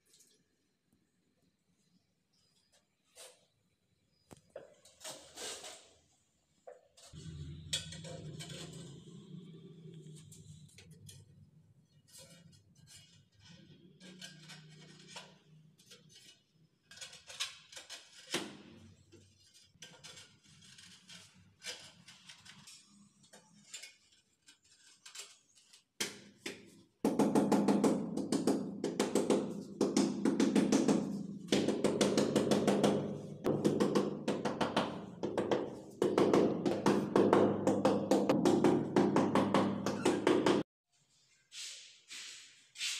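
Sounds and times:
rubber mallet thudding on tiles: 26.0s - 40.7s.

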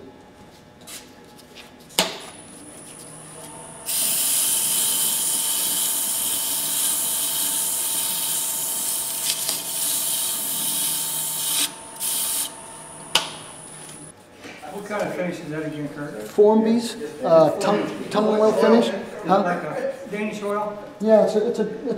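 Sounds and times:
lathe motor humming: 2.4s - 14.1s
abrasive pad sanding wood: 3.8s - 13.0s.

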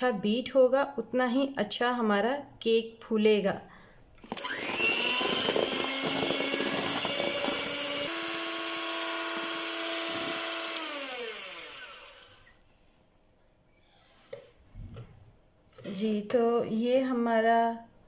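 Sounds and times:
electric hand mixer whirring: 4.2s - 12.6s.

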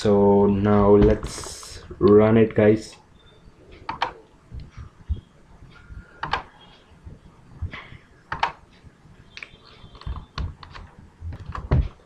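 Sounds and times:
computer mouse clicks: 3.8s - 4.8s, 6.2s - 6.5s, 8.3s - 8.6s, 9.3s - 11.7s.

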